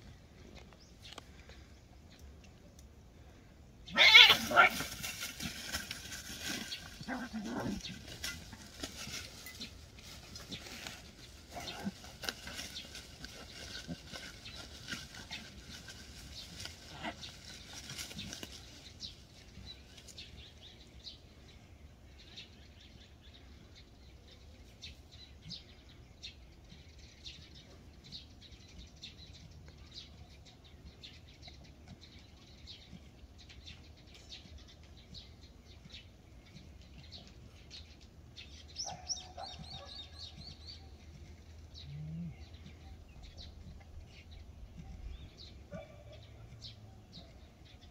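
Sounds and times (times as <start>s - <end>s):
small birds chirping: 0.0s - 47.9s
rustling: 4.0s - 20.3s.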